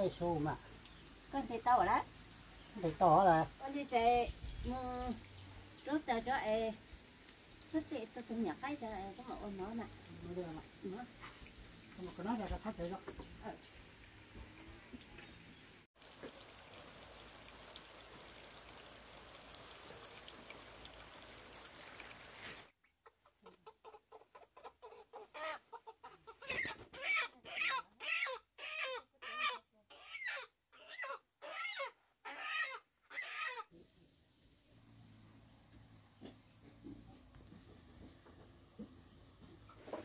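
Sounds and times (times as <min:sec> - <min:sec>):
faint steady hiss: 0:00.0 - 0:24.2
chicken clucking: 0:22.8 - 0:31.2.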